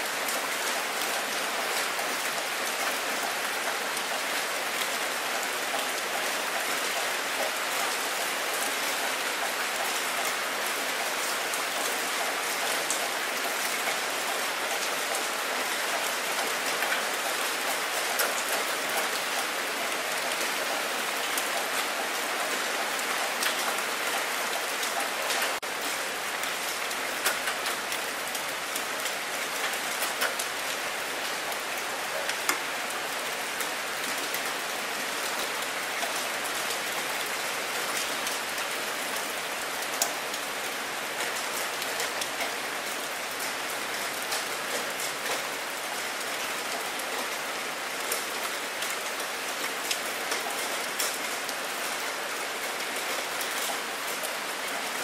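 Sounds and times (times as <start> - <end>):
rain falling on water: 0.0 - 55.0.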